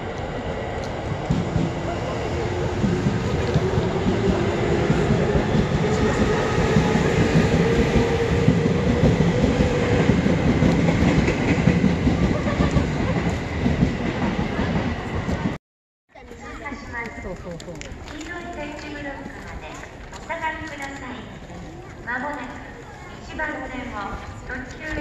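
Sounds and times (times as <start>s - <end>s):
train wheel rumble: 0.0s - 15.6s.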